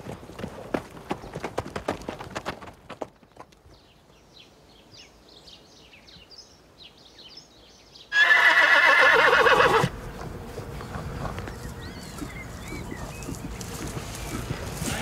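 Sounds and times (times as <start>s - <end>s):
horse whinny: 8.1s - 9.9s.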